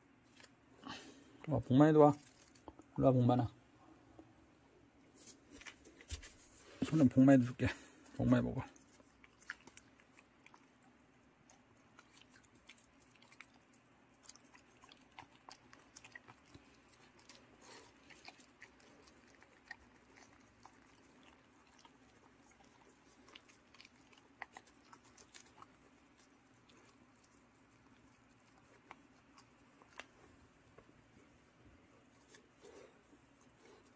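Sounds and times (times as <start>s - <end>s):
dogs chewing and smacking: 8.3s - 33.9s.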